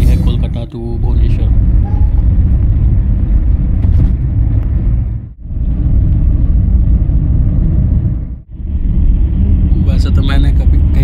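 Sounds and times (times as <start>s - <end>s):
car road and wind noise: 0.0s - 11.0s.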